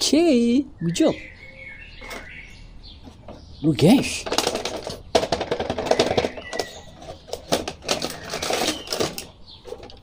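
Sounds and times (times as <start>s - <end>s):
plastic and cardboard packaging crackling: 4.1s - 10.0s.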